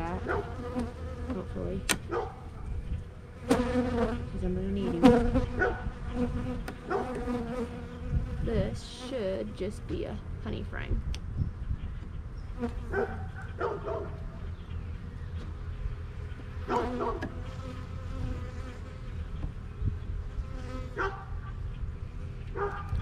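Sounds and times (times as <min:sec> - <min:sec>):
honeybees buzzing: 0:00.0 - 0:10.8, 0:12.3 - 0:23.0
bees flying past microphone: 0:03.4 - 0:08.8.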